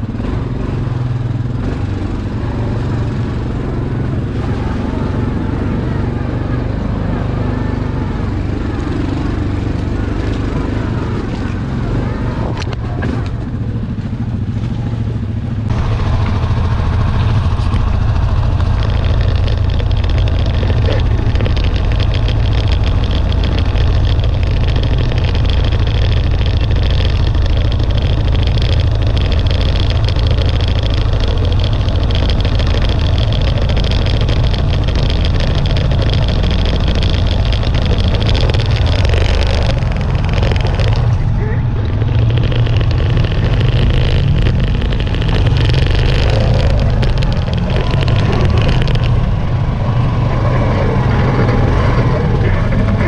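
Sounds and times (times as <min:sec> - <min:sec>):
engine running with low hum: 0:00.0 - 0:53.0.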